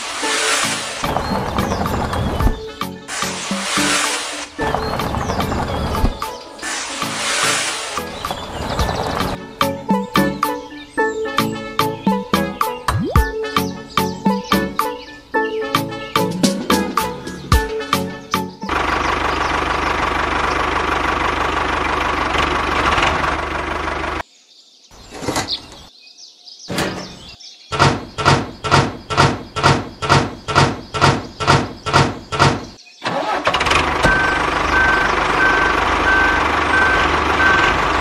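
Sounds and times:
engine running: 0.1s - 9.4s, 18.6s - 24.2s, 33.1s - 38.0s
regular strokes: 3.1s - 4.7s.

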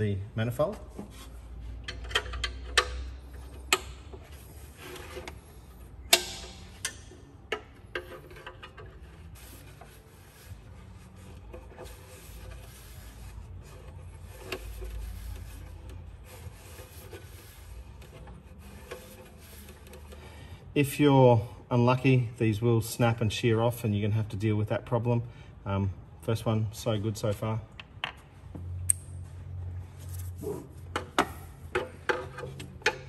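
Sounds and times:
socket rubbing on metal: 7.7s - 20.2s.

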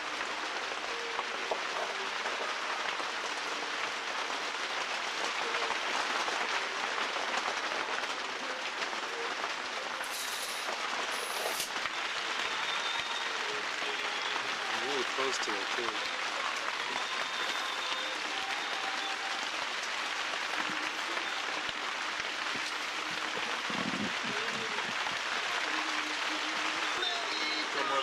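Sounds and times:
power tool hissing on wood: 10.0s - 11.7s.

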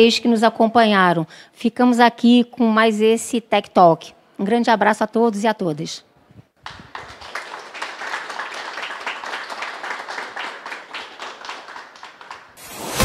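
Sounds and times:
audience applauding: 6.6s - 12.6s.

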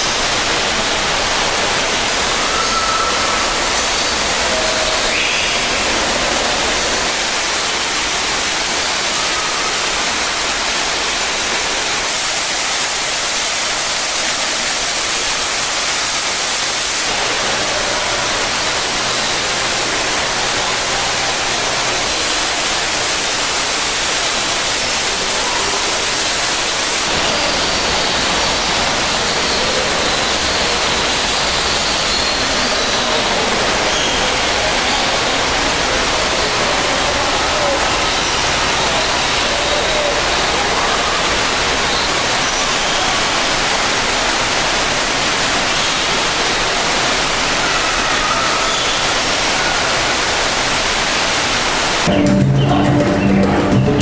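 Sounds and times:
waterfall rushing: 0.0s - 54.0s
faint bird calls: 2.3s - 5.9s.

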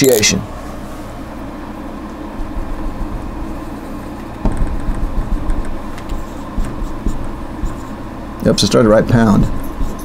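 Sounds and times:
marker scratching on whiteboard: 4.6s - 8.0s, 9.2s - 10.0s.

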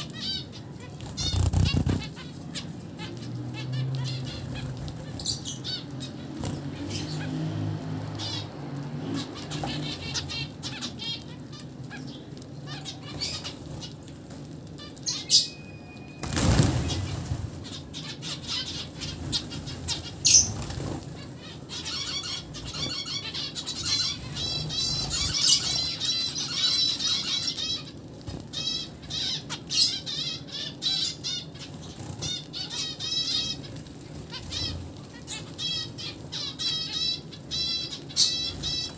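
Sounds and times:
finches chattering: 0.0s - 7.3s, 14.7s - 38.9s
wings fluttering: 0.0s - 8.4s, 16.1s - 30.0s, 31.0s - 38.9s.

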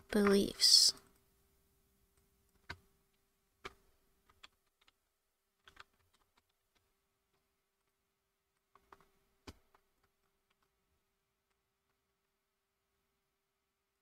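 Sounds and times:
faint steady hum: 0.0s - 5.8s
keyboard and mouse clicks: 2.5s - 2.9s, 3.6s - 5.0s, 5.6s - 8.0s, 8.6s - 10.8s.

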